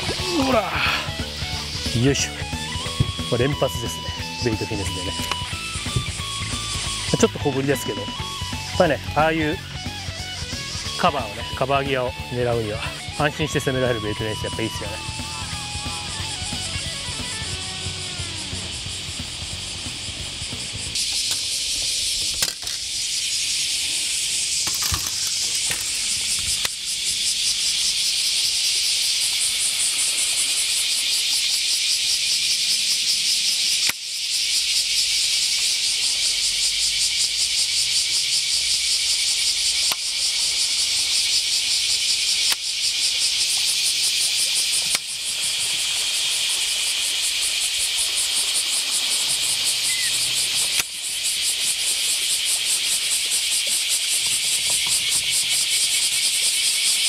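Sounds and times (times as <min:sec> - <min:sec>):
cicadas buzzing: 0:00.0 - 0:57.0.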